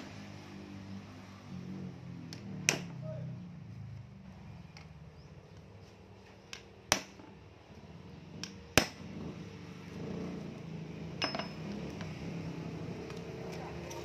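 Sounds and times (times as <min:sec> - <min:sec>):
hammer striking nail: 0:02.6 - 0:02.9, 0:06.5 - 0:07.2, 0:08.4 - 0:09.0.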